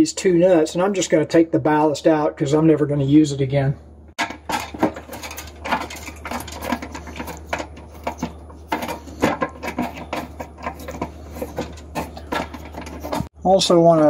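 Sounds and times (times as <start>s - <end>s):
nut driver unscrewing a nut: 4.4s - 13.3s.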